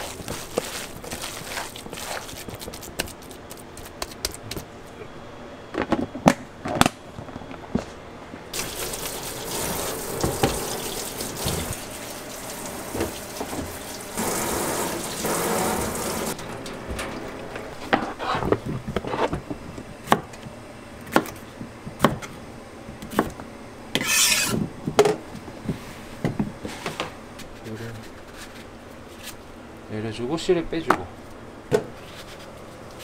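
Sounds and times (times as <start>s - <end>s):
tap running into metal sink: 8.6s - 11.8s.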